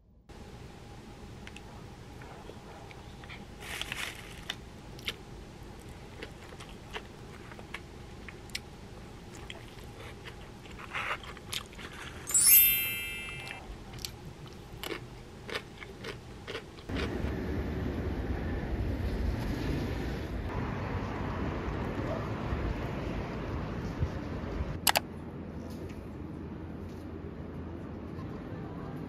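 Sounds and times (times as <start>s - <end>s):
person chewing: 3.2s - 5.2s, 5.8s - 8.7s, 9.3s - 12.3s, 13.9s - 17.1s
sharp ringing clink: 12.3s - 13.7s.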